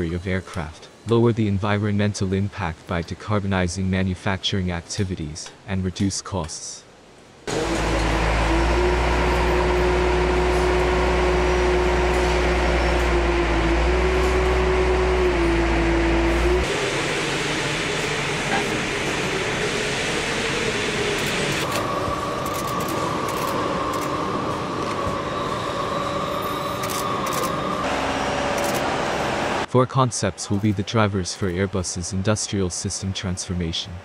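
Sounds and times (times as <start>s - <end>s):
steady mechanical noise: 7.1s - 34.0s
droning machine noise: 7.5s - 29.7s
high steady whine: 7.5s - 29.7s.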